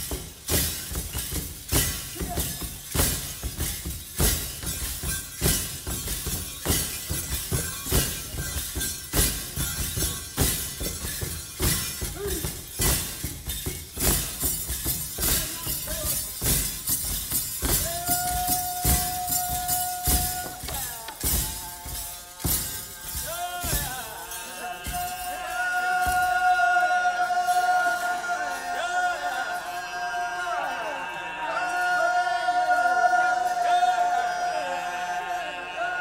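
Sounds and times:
metal ankle rattles jingling: 0.0 - 26.4.

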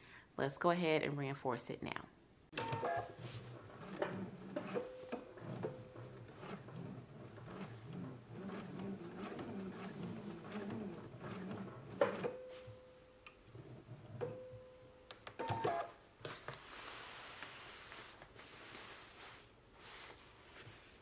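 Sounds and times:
sewing machine stitching: 2.6 - 12.4
fabric handling: 16.4 - 21.0.

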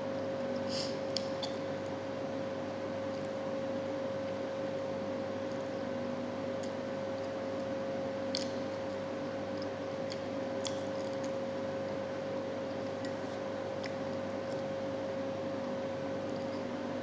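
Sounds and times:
electrical hum: 0.0 - 17.0
person chewing bread: 6.6 - 15.0.

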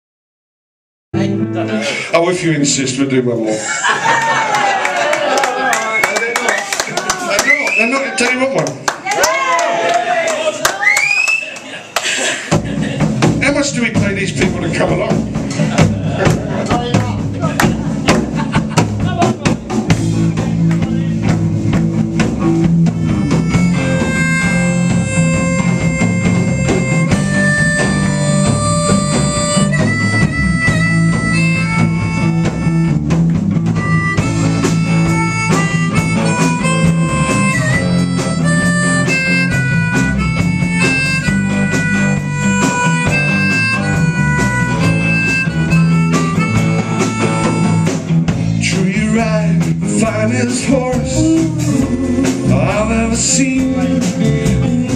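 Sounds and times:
blues band playing: 1.2 - 54.9
harmonica long held notes: 22.7 - 48.8, 50.8 - 53.1.

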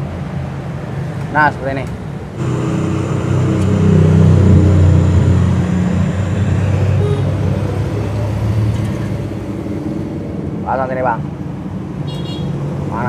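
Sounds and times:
vehicle engine rumble: 1.9 - 12.0.

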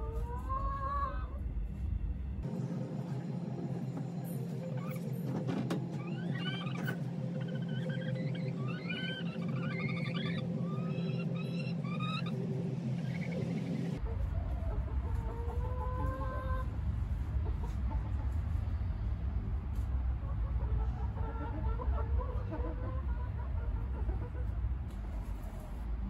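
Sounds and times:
chickens clucking: 0.0 - 1.3, 4.6 - 18.7, 20.2 - 25.7
low rumble: 0.0 - 5.1, 6.0 - 26.0
steady tones and chirping: 0.1 - 19.5.

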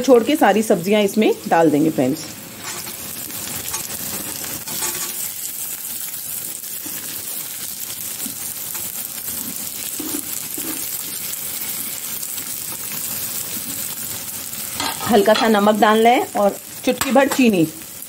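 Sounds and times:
vegetables sizzling in hot oil: 0.0 - 18.0
metal spatula scraping pan: 2.6 - 5.4, 8.7 - 11.0, 14.8 - 15.6.

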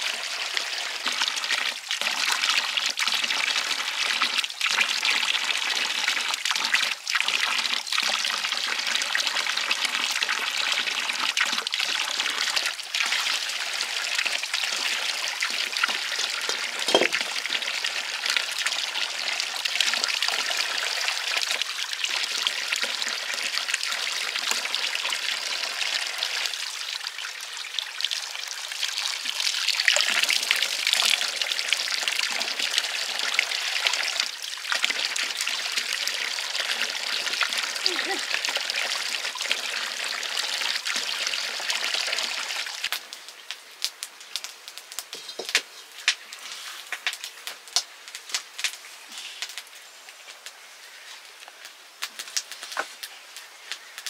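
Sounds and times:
water trickling: 0.0 - 43.6.

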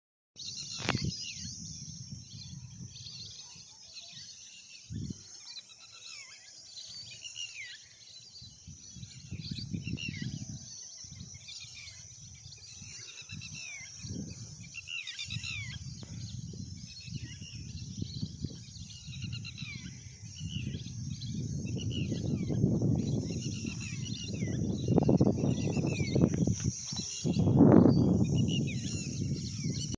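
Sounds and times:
wind rumbling on microphone: 0.4 - 7.3, 8.1 - 29.9
birds chirping: 0.4 - 29.9.

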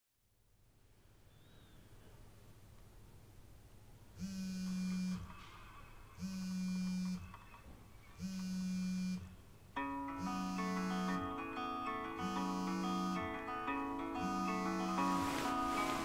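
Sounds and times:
phone vibrating on floor: 4.2 - 5.4, 6.2 - 11.4, 12.1 - 16.0.

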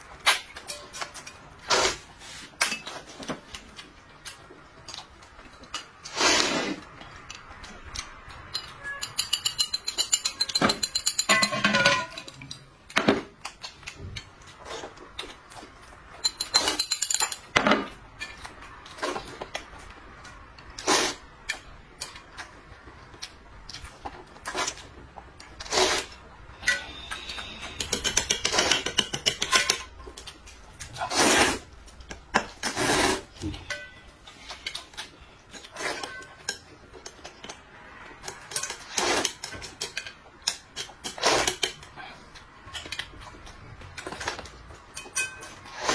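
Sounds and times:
slurping soup: 6.0 - 6.9, 25.6 - 26.2, 31.0 - 31.7, 32.6 - 33.4
chopsticks clicking against bowls: 7.2 - 11.5, 27.0 - 30.9.

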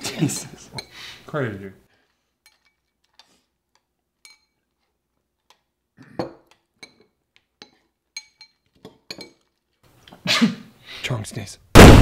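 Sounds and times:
spoons clinking on ceramic bowls: 0.2 - 1.0, 2.4 - 9.6.

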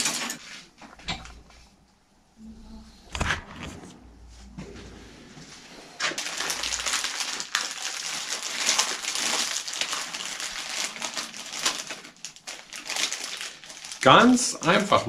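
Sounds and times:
plastic packaging crinkling: 6.0 - 14.6.

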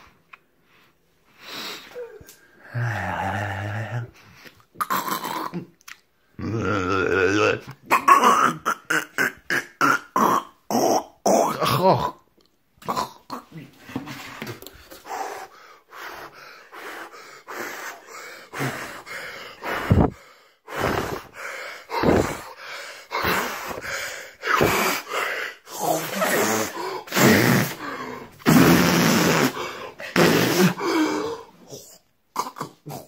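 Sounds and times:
drawn-out vocal sounds: 1.9 - 5.8
man gasping and breathing hard: 14.9 - 28.5, 29.4 - 31.7.

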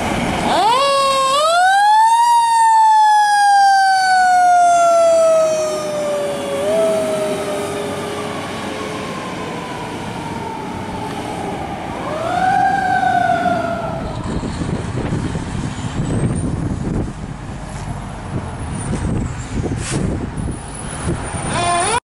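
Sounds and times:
fire engine siren wailing: 0.0 - 17.0, 21.3 - 22.0
low rumble: 13.6 - 20.6.

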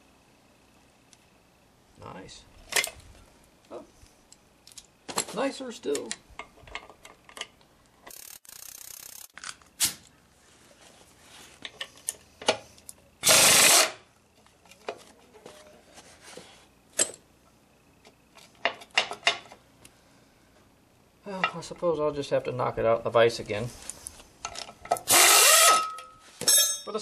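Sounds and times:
metal tool clinking on bolts: 24.5 - 27.0.

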